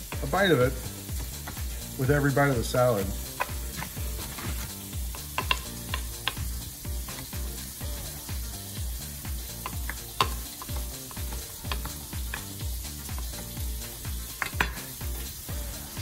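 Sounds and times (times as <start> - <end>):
fine hiss: 0.0 - 16.0
steady low beat: 0.0 - 16.0
knife chopping on wooden board: 3.1 - 6.5.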